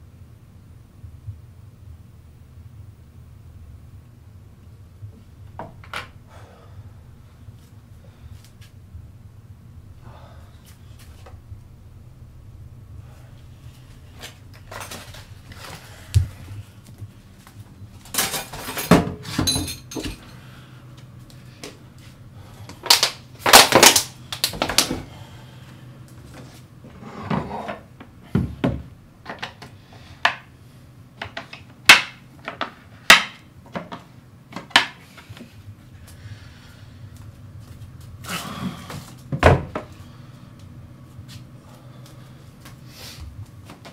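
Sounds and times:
objects knocking and clattering: 18.0 - 20.4.

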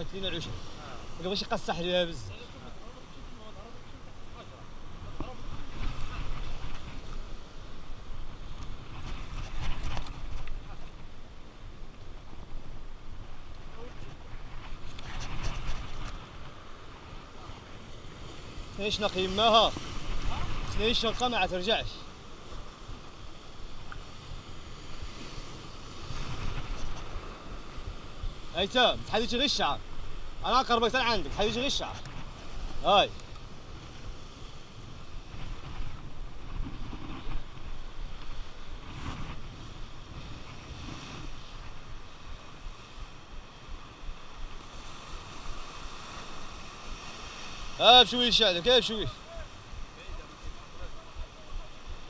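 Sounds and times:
sea surf washing over rocks: 0.0 - 52.0
wind buffeting microphone: 22.6 - 52.0.

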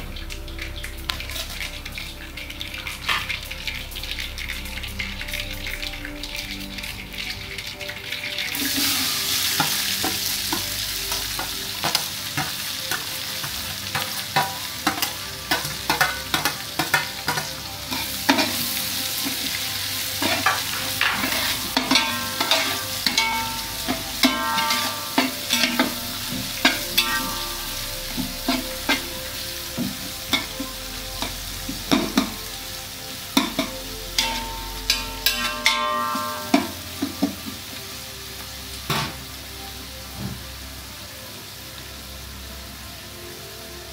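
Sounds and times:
onions sizzling in hot oil: 0.0 - 43.9
metal ladle scraping and clanking pot: 20.2 - 29.2, 33.4 - 37.4.

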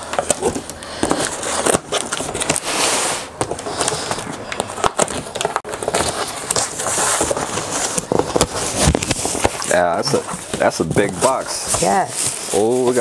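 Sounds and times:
wrappings rustling and crinkling: 0.0 - 13.0
cardboard flaps scraping: 0.1 - 13.0.

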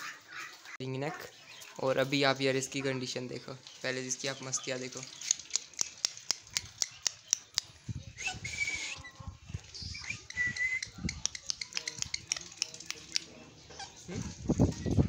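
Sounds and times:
sharp clicks: 5.2 - 7.7, 10.3 - 13.3.

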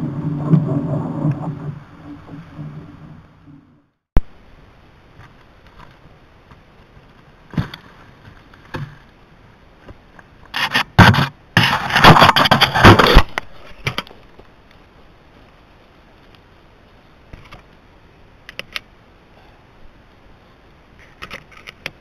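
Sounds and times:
hand scraping and clicking on camera: 21.0 - 22.0.

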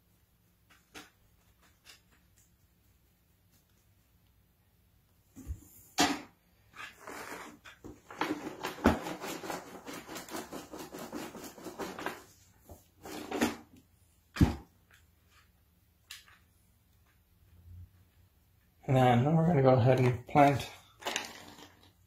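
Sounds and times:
rustling and scraping potting soil: 0.0 - 4.3, 6.5 - 14.2.

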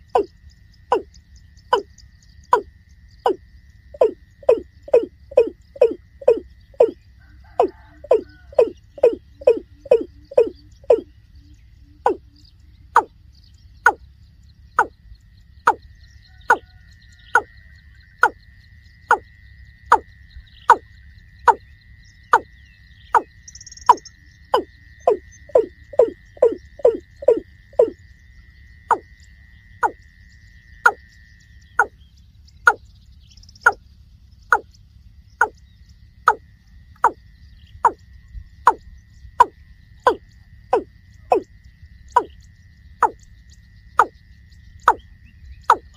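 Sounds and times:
faint high whine: 0.0 - 45.9.

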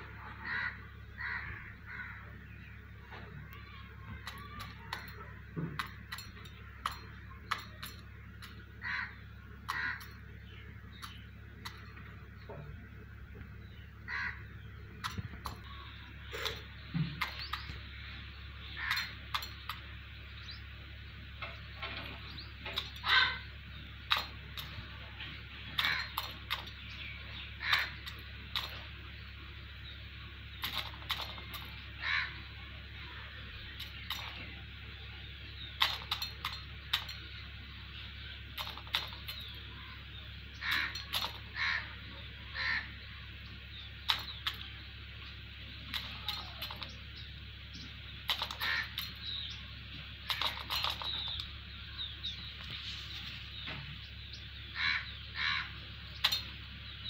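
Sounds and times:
steady low hum: 0.0 - 57.0
crows cawing: 0.2 - 5.4, 8.7 - 10.3, 14.0 - 16.6, 18.6 - 19.7, 22.8 - 23.5, 25.6 - 28.8, 30.7 - 33.3, 38.6 - 43.1, 48.3 - 49.4, 54.7 - 55.8
sharp clicks and taps: 48.3 - 49.2.

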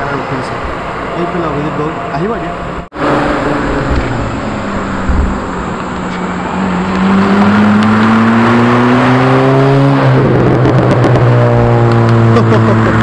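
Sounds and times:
car accelerating past: 3.0 - 13.0.

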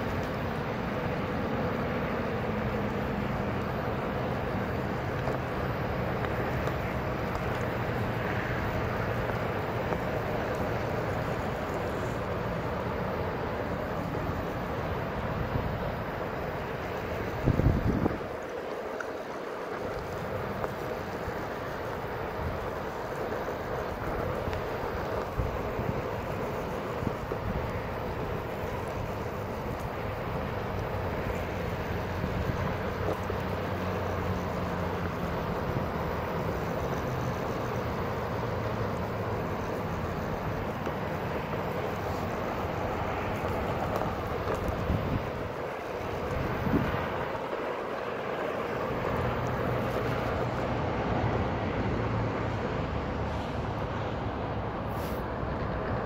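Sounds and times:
tyre noise on pavement: 0.0 - 56.0
wind on microphone: 16.8 - 18.5, 41.7 - 47.5.

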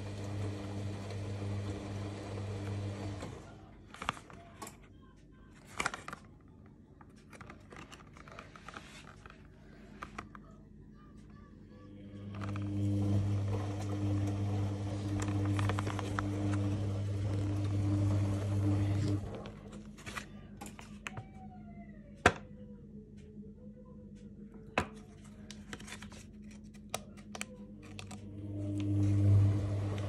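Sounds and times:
plastic blister pack crinkling: 5.6 - 10.4, 15.1 - 16.7.

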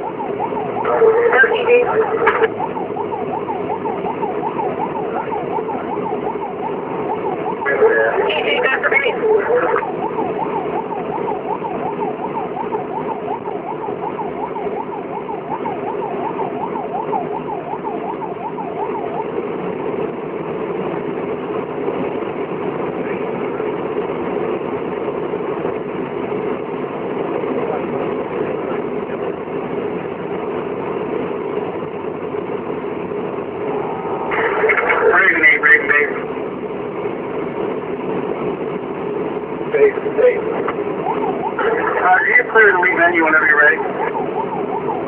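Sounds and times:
siren yelping: 0.0 - 22.5, 33.3 - 45.0
vehicle engine and road noise: 0.0 - 45.0.

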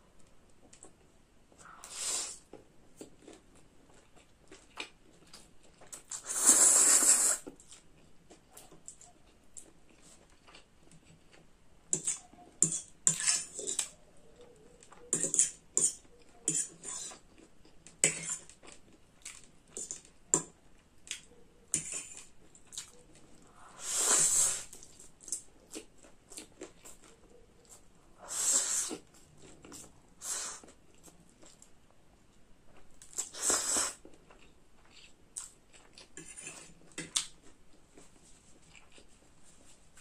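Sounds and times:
person slurping noodles: 6.1 - 7.5, 23.6 - 24.8, 28.2 - 29.0, 33.3 - 34.0.

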